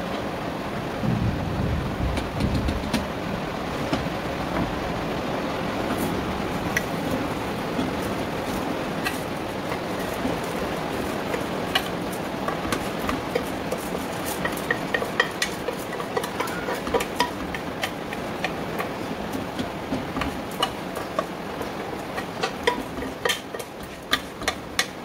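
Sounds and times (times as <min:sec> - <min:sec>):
steady hiss: 0:00.0 - 0:25.0
spoon clinking against pot: 0:08.5 - 0:19.0, 0:19.6 - 0:25.0.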